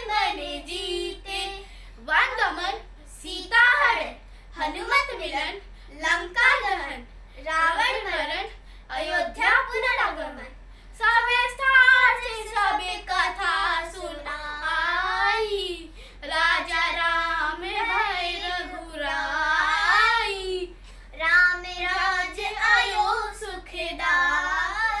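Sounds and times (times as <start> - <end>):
children singing unaccompanied: 0.0 - 1.7, 11.2 - 25.0.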